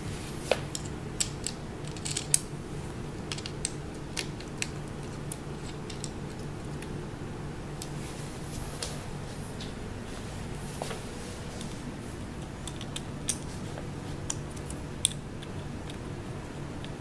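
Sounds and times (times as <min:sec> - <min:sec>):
nuts and washers clicking on bolts: 0:00.7 - 0:02.5.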